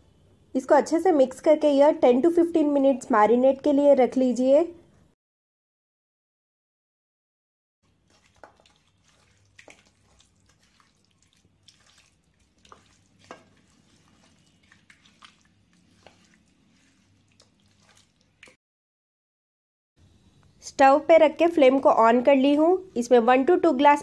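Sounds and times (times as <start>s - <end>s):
hand squishing meat in marinade: 7.8s - 18.6s.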